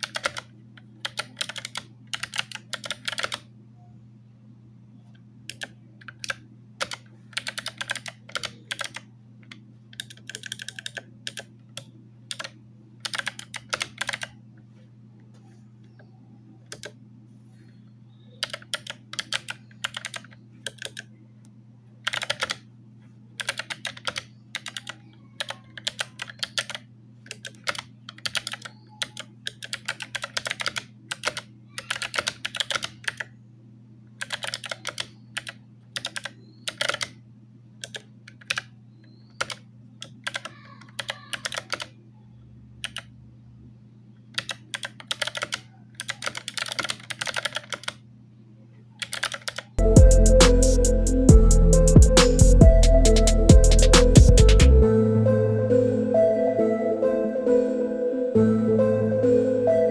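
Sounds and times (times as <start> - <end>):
steady low hum: 0.0 - 40.3, 41.9 - 49.0, 49.7 - 59.9.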